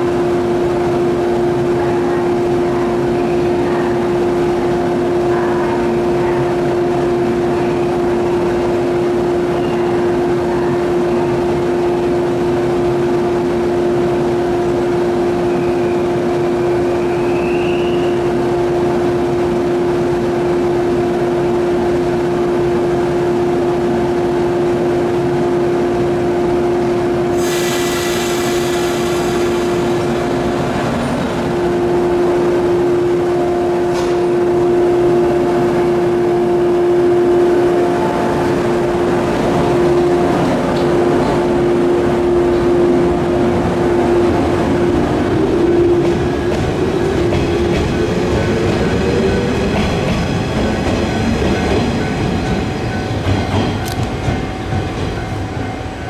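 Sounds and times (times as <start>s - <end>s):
electric train humming: 0.0s - 56.0s
high many-toned whine: 27.8s - 56.0s.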